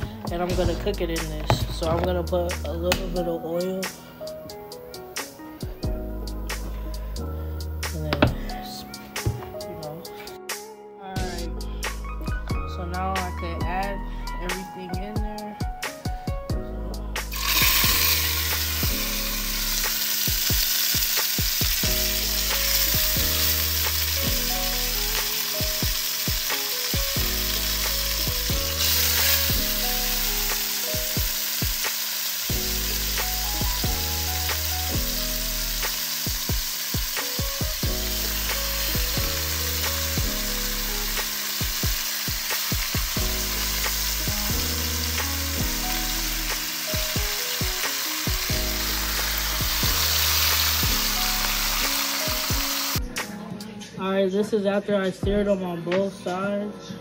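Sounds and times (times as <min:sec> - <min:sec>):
background music with bass line: 0:00.0 - 0:57.0
meat sizzling in hot oil: 0:17.3 - 0:53.0.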